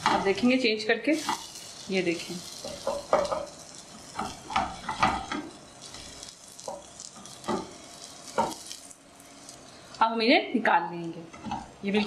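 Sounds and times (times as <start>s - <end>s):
spatula scraping and knocking pan: 0.0s - 0.3s, 1.2s - 1.8s, 2.4s - 9.7s
bread sizzling in oil: 0.0s - 10.4s.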